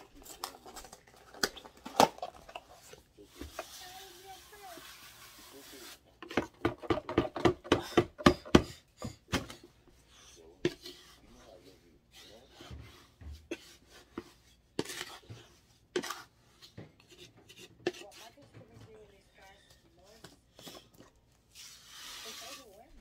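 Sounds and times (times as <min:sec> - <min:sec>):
spoon stirring powder: 0:02.8 - 0:23.0
detergent box shaken and tapped: 0:06.2 - 0:08.6
spoon knocking plastic bucket: 0:06.2 - 0:09.6.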